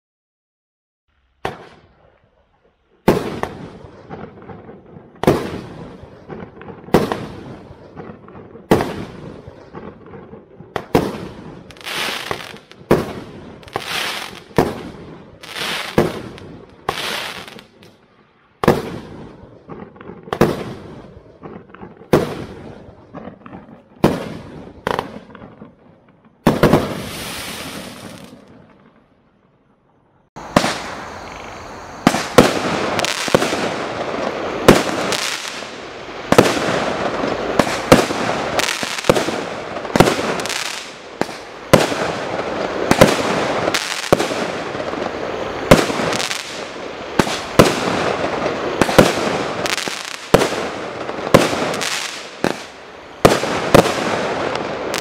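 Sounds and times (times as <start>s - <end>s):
firework bangs: 1.4s - 18.0s, 18.6s - 29.1s, 30.4s - 55.0s
firework hiss: 10.8s - 17.8s, 26.5s - 28.5s, 30.4s - 55.0s.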